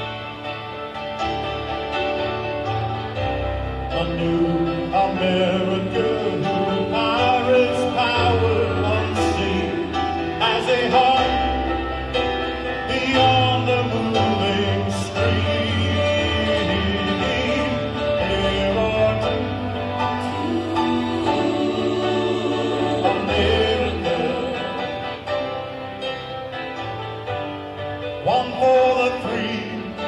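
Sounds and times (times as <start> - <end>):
man singing: 3.8 - 24.8, 28.2 - 30.0.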